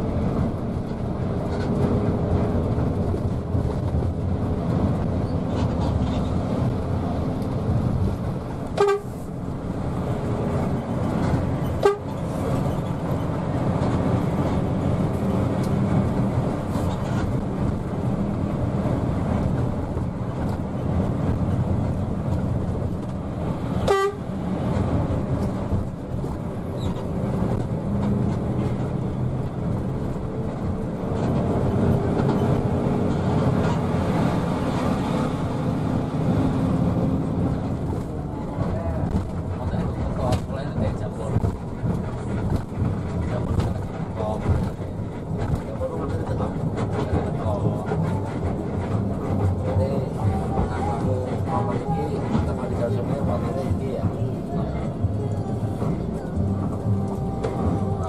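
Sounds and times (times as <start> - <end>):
bus engine and road noise: 0.0 - 58.0
short horn toot: 8.8 - 9.2.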